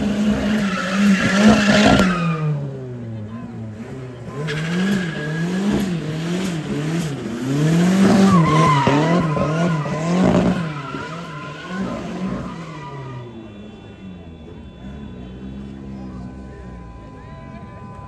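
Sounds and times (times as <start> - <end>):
car engine revving: 0.0 - 17.7
tyres squealing on pavement: 0.1 - 2.7, 3.8 - 18.0.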